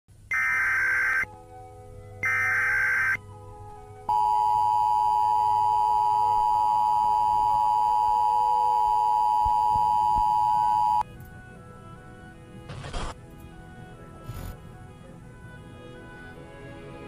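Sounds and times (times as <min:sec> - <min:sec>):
two-tone alert signal: 0:00.3 - 0:01.3, 0:02.2 - 0:03.2, 0:04.1 - 0:11.0.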